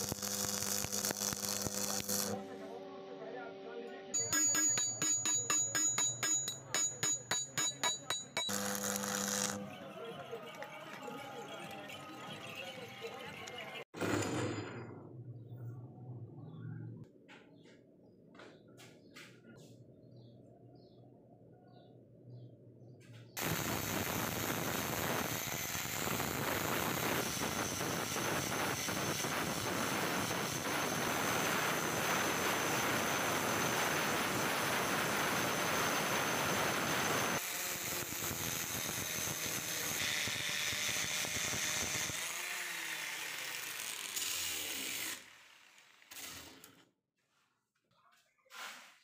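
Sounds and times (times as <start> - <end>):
angle grinder grinding steel: 0.0 - 2.4, 4.2 - 9.8.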